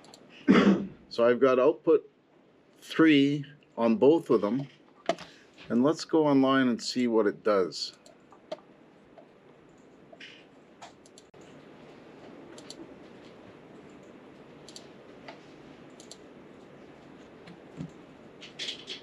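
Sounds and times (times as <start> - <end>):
mouse and keyboard clicks: 12.5 - 12.8.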